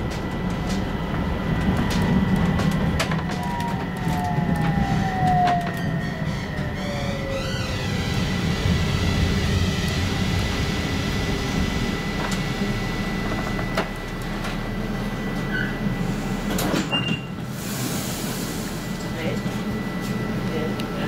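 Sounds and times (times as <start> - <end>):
high whine from tram drive: 0.0 - 21.0
tram running and braking: 0.0 - 21.0.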